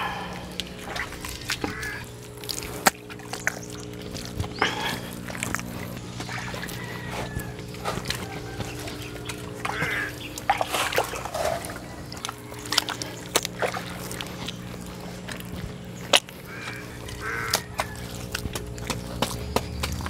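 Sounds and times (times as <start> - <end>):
steady low hum: 0.0 - 20.0
wet mud slaps: 0.2 - 20.0
shovel scraping: 10.6 - 11.8.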